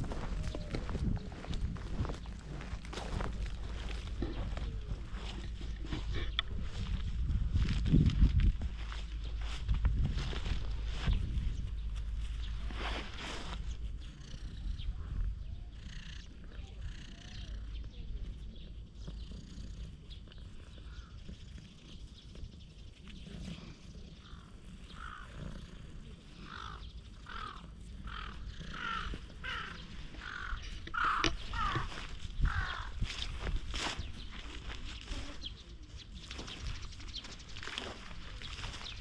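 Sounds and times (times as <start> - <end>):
low steady rumble: 0.0 - 15.8.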